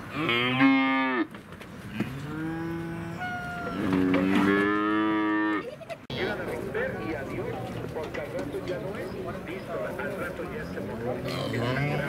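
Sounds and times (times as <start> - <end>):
calves mooing: 0.1 - 1.3, 1.9 - 5.6.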